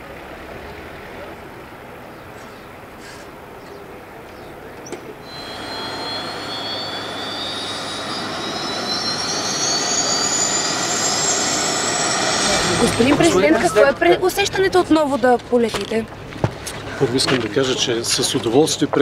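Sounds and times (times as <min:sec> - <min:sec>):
turboprop engine whine rising: 0:05.3 - 0:14.6.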